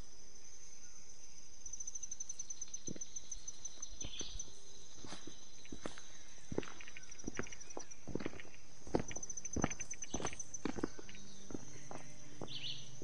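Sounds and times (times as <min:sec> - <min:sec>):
fast pulsing insect trill: 0:00.0 - 0:13.0
insects droning: 0:00.0 - 0:13.0
footsteps on a trail: 0:02.7 - 0:13.0.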